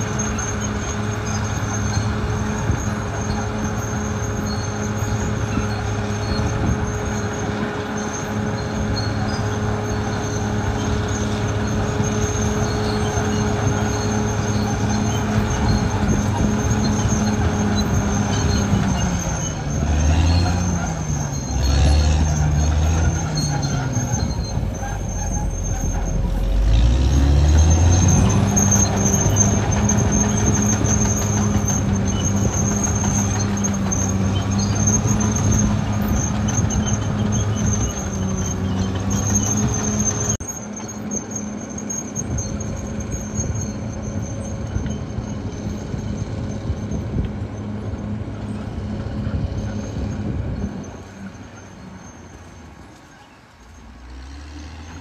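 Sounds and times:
thin high squeal: 0.0 - 48.6, 49.3 - 55.0
bulldozer diesel engine under load: 0.0 - 55.0.

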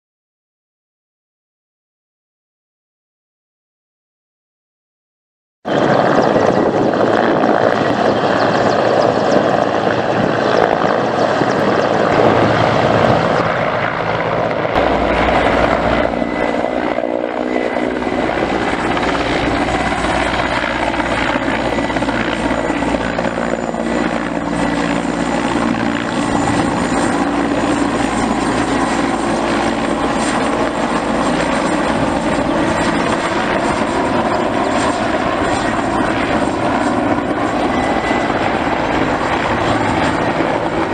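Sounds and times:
helicopter rotor beating: 5.7 - 40.9
turbine engines with high tone: 10.0 - 40.9.

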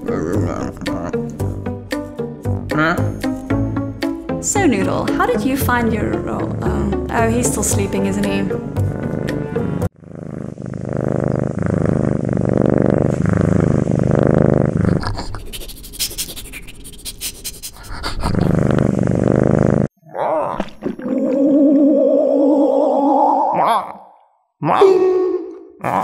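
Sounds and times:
cartoon cat snoring: 8.8 - 16.0, 17.7 - 19.9.

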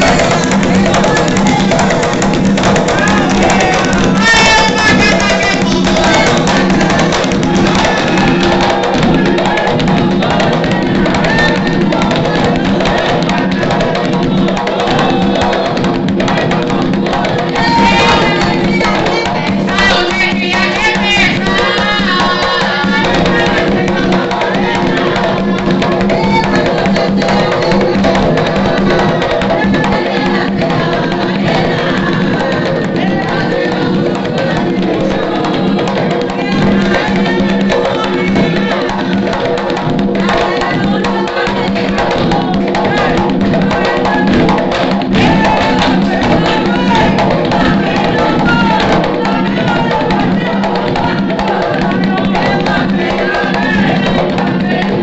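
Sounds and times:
drums playing steady rhythm: 0.0 - 55.0
voices singing a chant: 0.0 - 55.0.

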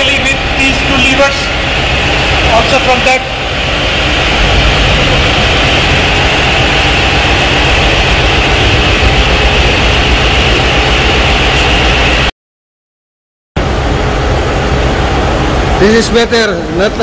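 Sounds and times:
engine room machinery drone: 0.0 - 12.3, 13.6 - 17.0.

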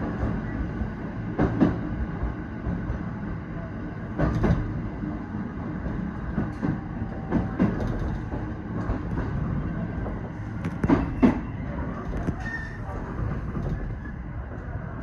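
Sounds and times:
train rumbling on rails: 0.0 - 15.0
wheels clacking over rail joints: 5.8 - 14.0.

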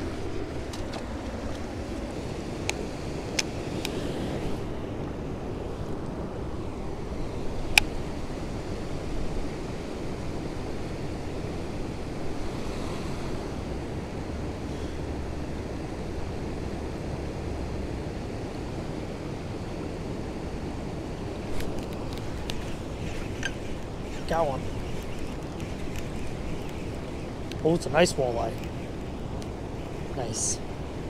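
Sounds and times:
wind buffeting microphone: 20.7 - 31.0
river water rushing: 21.4 - 31.0
light clicks: 21.6 - 27.6.

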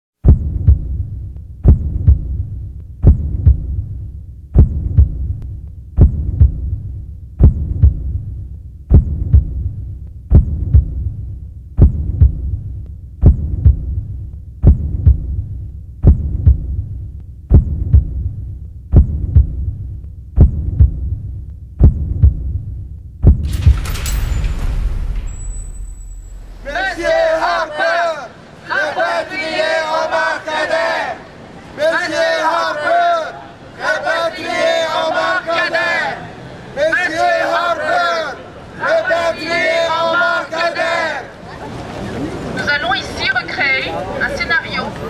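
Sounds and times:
heartbeat double thump: 0.2 - 27.3
low hum: 0.2 - 27.7.

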